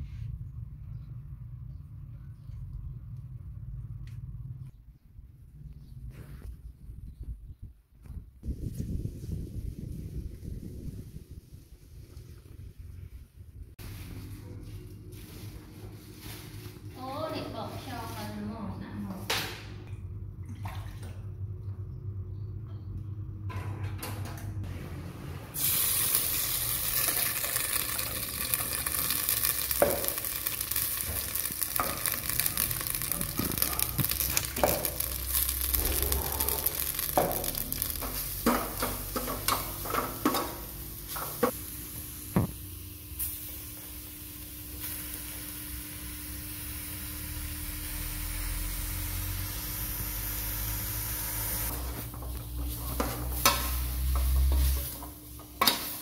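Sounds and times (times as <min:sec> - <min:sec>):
paste sizzling in hot oil: 0:25.6 - 0:51.7.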